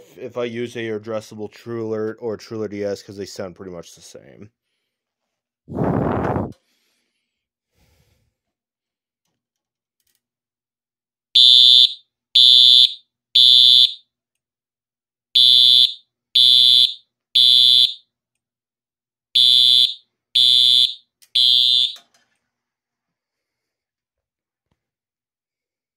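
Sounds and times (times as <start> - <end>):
fire alarm horn blasts: 11.4 - 14.0, 15.4 - 18.1, 19.4 - 22.0.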